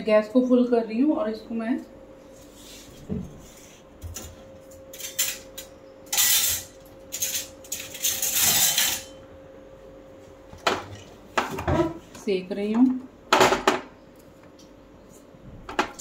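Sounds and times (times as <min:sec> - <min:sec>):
faint steady hum: 0:00.0 - 0:16.0
metal spoon clinking and scraping: 0:06.1 - 0:09.2.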